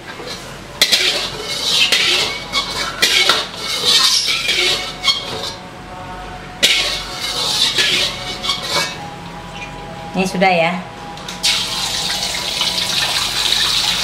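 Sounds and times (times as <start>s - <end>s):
metal spatula scraping a wok: 0.0s - 5.6s, 6.6s - 9.1s.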